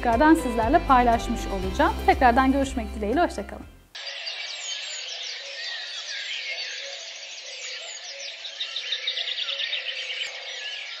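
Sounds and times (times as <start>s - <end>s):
small birds chirping: 3.9s - 11.0s.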